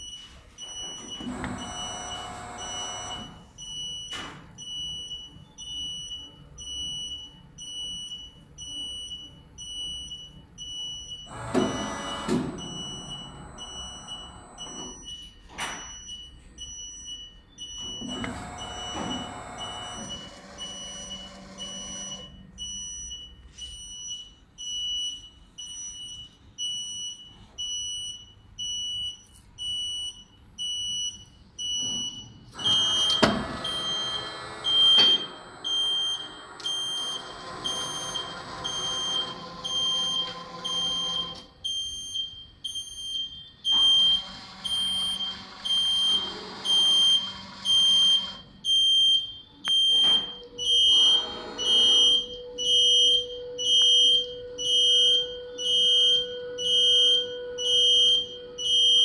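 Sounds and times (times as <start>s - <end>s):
high-pitched warning beeps: 0.0s - 59.0s
machine motor running: 1.2s - 3.4s, 11.3s - 14.7s, 18.0s - 22.3s, 32.6s - 41.5s, 44.0s - 48.4s, 50.7s - 52.6s.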